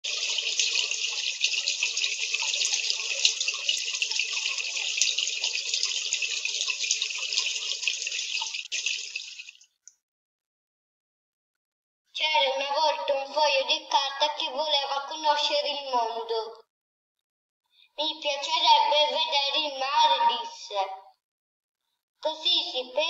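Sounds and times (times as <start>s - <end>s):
running water rushing: 0.0s - 9.6s.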